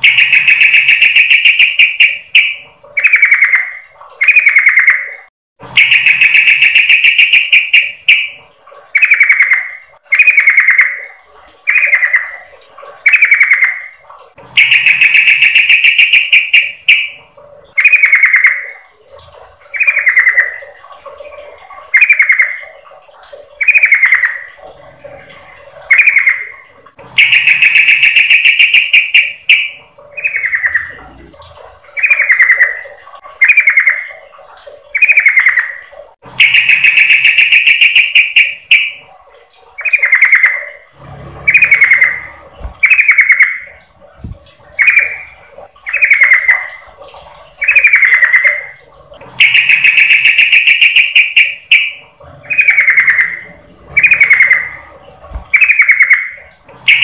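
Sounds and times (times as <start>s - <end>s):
bird buzzy chattering calls: 25.9s - 31.3s, 41.4s - 43.8s, 47.6s - 57.0s.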